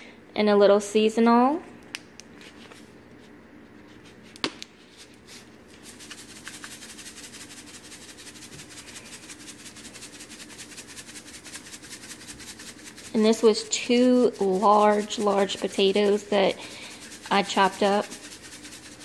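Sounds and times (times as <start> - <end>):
seasoning shaker rattling: 5.0 - 19.0.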